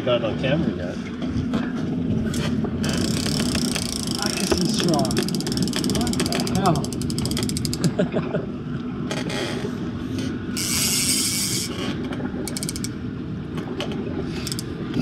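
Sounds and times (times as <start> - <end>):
reel drag buzz: 2.8 - 7.8, 10.6 - 13.0
fishing reel drag clicking: 2.9 - 7.8, 10.6 - 11.7, 12.5 - 13.0, 14.4 - 14.7.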